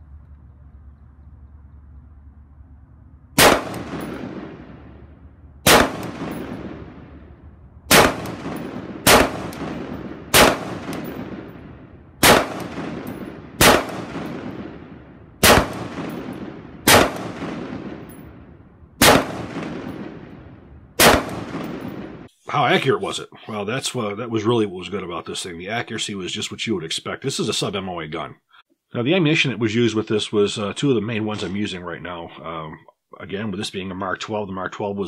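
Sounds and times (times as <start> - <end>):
rifle shots with echo: 3.4 - 22.3.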